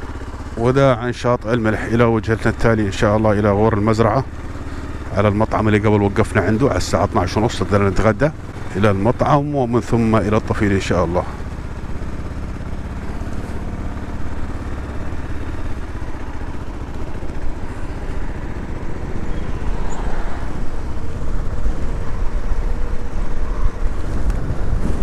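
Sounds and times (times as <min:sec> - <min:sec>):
motorcycle engine running: 0:00.0 - 0:25.0
road noise: 0:00.0 - 0:25.0
wind noise: 0:19.2 - 0:25.0.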